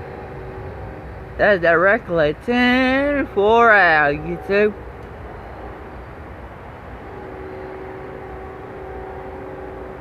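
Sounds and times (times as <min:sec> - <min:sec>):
distant engine drone: 0:00.0 - 0:10.0.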